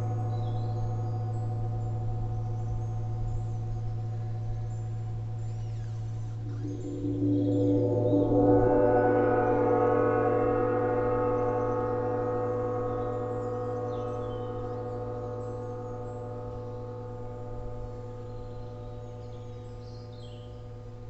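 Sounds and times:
gong ringing: 6.5 - 18.5.

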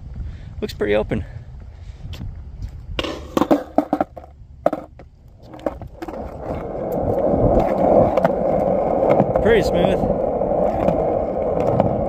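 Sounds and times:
skateboard wheels rolling on concrete: 0.0 - 12.0.

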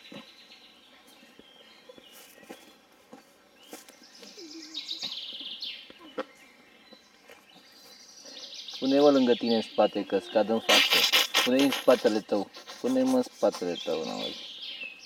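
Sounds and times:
bird chirping in rapid trill: 9.2 - 14.6.

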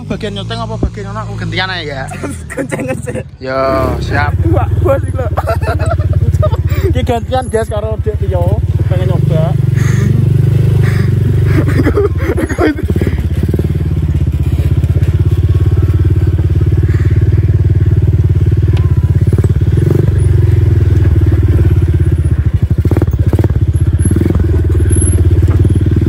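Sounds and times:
atv engine putter: 0.0 - 26.0.

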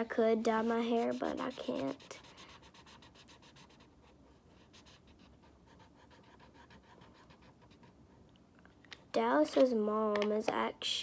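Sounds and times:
felt-tip marker scratching on paper: 0.0 - 8.0.

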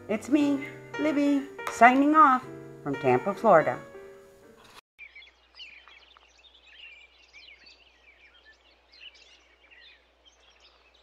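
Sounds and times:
small birds chirping: 4.6 - 11.0.

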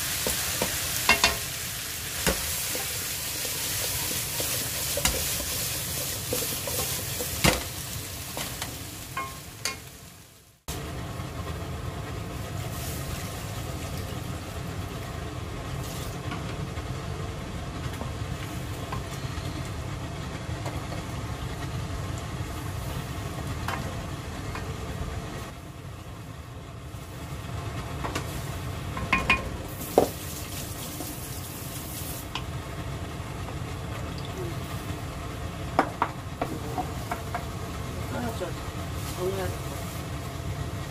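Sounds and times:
chicken sizzling in a pan: 0.0 - 16.3, 28.2 - 32.4.

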